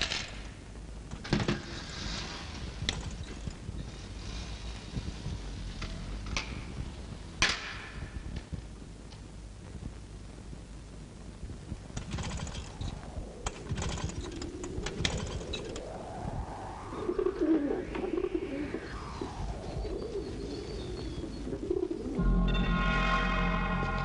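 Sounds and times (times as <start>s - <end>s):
pigeon wing flaps: 12.0s - 15.8s
rising and falling sound: 12.7s - 24.0s
pigeons cooing: 16.8s - 22.2s.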